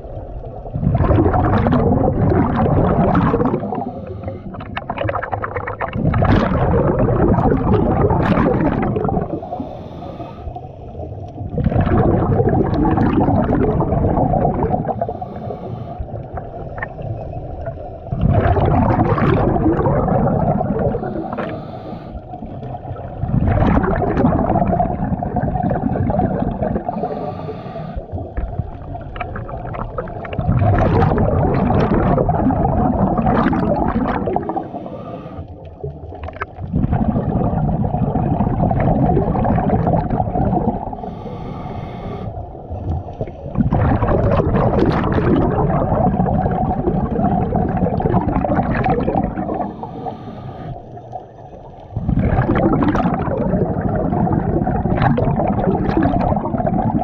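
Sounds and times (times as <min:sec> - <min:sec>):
bubbling diver exhalations: 0:00.6 - 0:17.0, 0:18.1 - 0:22.0, 0:22.6 - 0:35.3, 0:36.2 - 0:42.4, 0:43.2 - 0:50.8, 0:52.0 - 0:57.0
quiet regulator inhalations: 0:03.6 - 0:04.8, 0:09.2 - 0:11.4, 0:14.8 - 0:18.1, 0:20.9 - 0:23.2, 0:26.4 - 0:29.1, 0:34.4 - 0:36.0, 0:40.8 - 0:43.6, 0:49.4 - 0:52.0.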